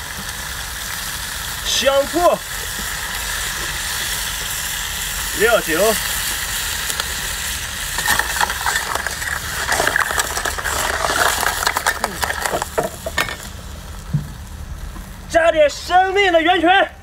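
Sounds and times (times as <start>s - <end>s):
seafood sizzling in a wok: 0.0s - 15.4s
metal ladle scraping a wok: 8.0s - 13.5s.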